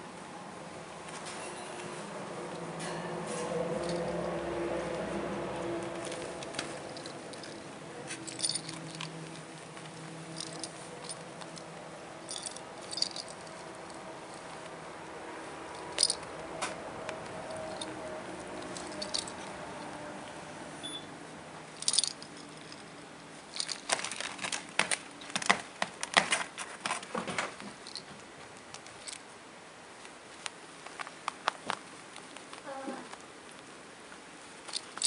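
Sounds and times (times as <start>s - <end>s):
kittens rustling on a pad: 1.0s - 20.3s, 21.8s - 29.2s.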